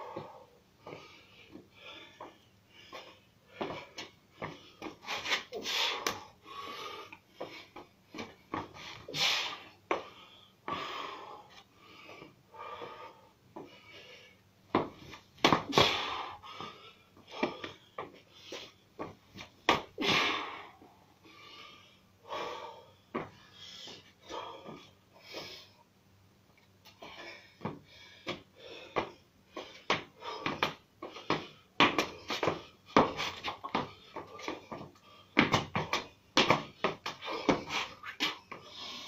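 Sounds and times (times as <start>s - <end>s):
man breathing forcefully: 0.0s - 18.8s, 19.8s - 25.9s, 26.9s - 39.0s
feet scuffing and thudding: 14.7s - 16.2s, 29.0s - 38.5s.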